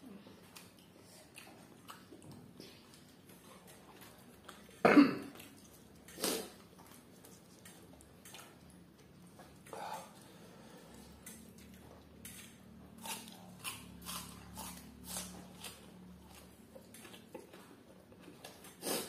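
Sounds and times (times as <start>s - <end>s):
eating clicks and smacks: 0.4s - 10.3s, 10.9s - 19.0s
person clearing throat: 4.8s - 5.4s
person coughing: 4.8s - 5.4s.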